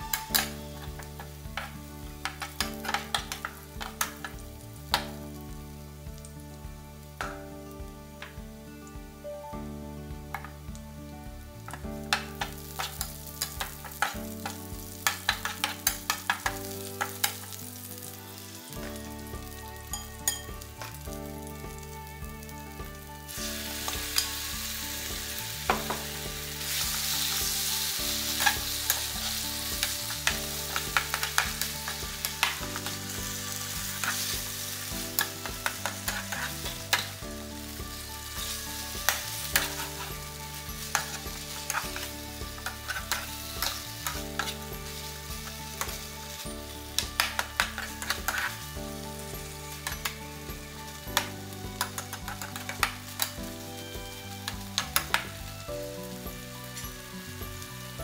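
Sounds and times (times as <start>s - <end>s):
food sizzling in oil: 0.0s - 58.0s
metal spatula scraping pan: 23.6s - 37.2s, 38.0s - 46.4s, 47.1s - 50.2s, 51.8s - 53.4s.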